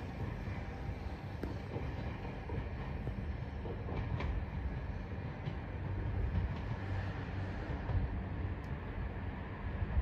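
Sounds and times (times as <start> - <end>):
train wheel clicks on track: 0.0 - 8.9
electric train rumbling: 0.0 - 10.0.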